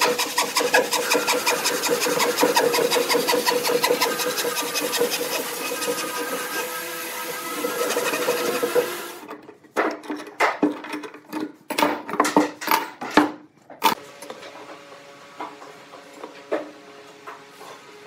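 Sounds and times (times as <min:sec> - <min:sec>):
handsaw cutting wood: 0:00.0 - 0:09.3.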